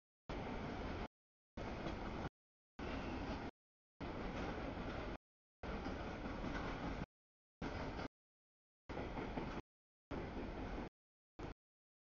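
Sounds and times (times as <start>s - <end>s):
freight train wheels rumbling: 8.9s - 10.9s.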